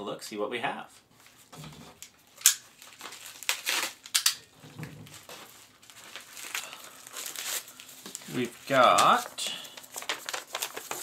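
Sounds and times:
paper envelope rustling and crackling: 0:02.7 - 0:04.2, 0:04.9 - 0:11.0.

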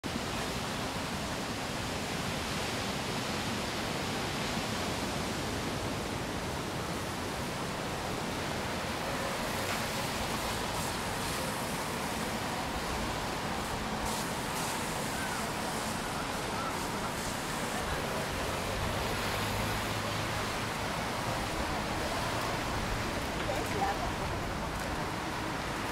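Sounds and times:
steady rushing outdoor hiss: 0:00.0 - 0:25.9.

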